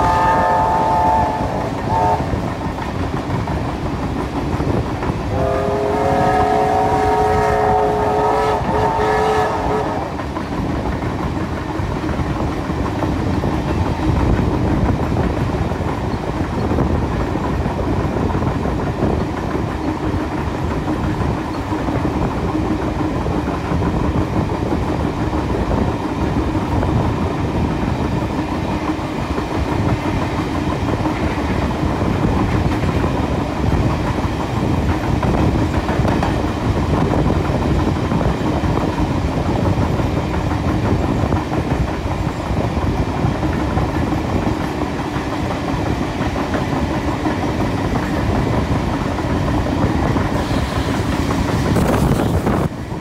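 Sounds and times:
steam locomotive whistle: 0:00.0 - 0:02.4, 0:05.3 - 0:10.2
train rumbling on rails: 0:00.0 - 0:53.0.

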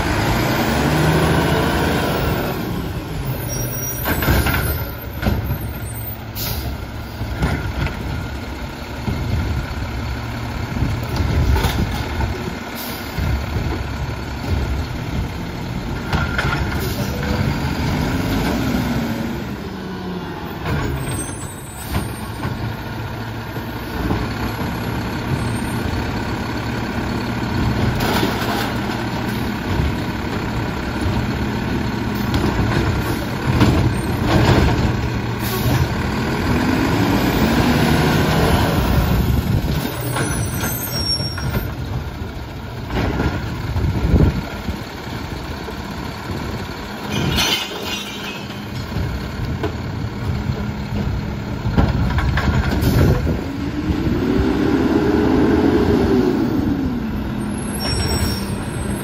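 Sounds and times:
garbage truck engine revving: 0:00.0 - 0:03.4, 0:13.2 - 0:40.6, 0:49.0 - 0:59.0.

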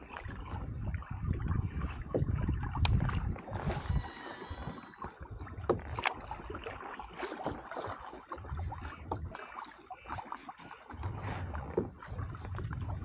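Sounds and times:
water lapping: 0:00.0 - 0:13.0
fishing reel spool whining: 0:03.8 - 0:05.0.

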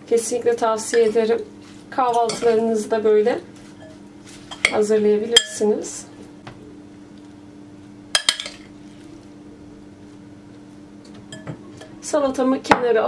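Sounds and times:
steady low hum: 0:00.0 - 0:13.0
metal spoon clinking glass bowl: 0:08.2 - 0:08.7.

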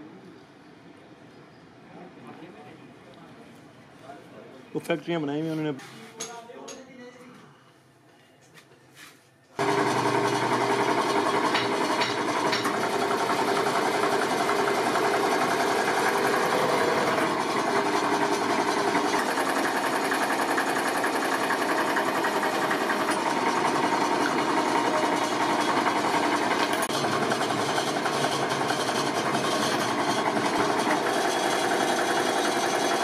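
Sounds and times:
press machine rattling: 0:09.6 - 0:33.0.

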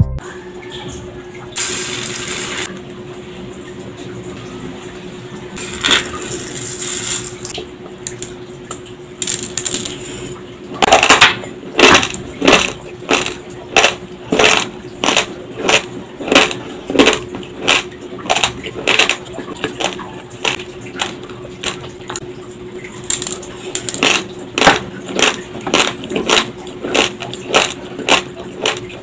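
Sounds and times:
crunching of chewed dry rice: 0:11.8 - 0:22.2, 0:22.8 - 0:29.0.

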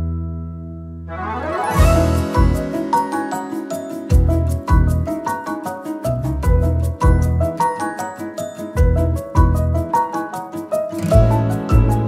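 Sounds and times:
low bass notes: 0:00.0 - 0:02.8, 0:04.2 - 0:05.2, 0:06.2 - 0:07.5, 0:11.1 - 0:12.0
tinkling bell-like notes: 0:01.5 - 0:06.2, 0:06.8 - 0:09.7.

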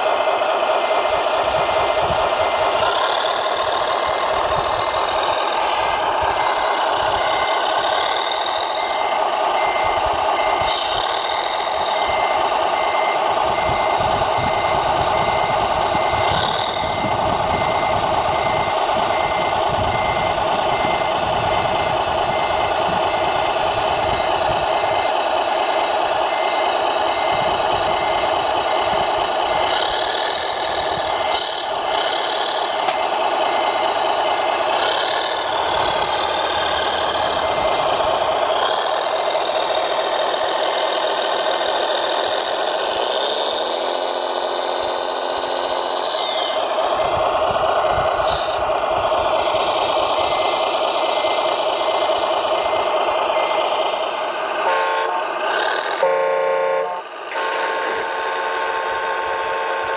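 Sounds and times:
engine-like drone: 0:00.0 - 0:59.9
repeating warning beep: 0:00.7 - 0:40.8, 0:44.6 - 0:46.6, 0:50.0 - 0:53.8.

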